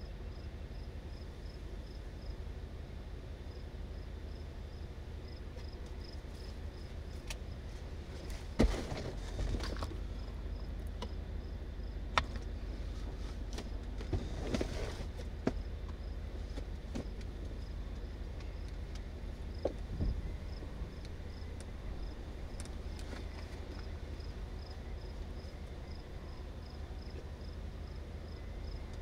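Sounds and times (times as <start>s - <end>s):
low rumble: 17.4s - 29.0s
insect chirping: 19.5s - 22.6s, 23.8s - 28.9s.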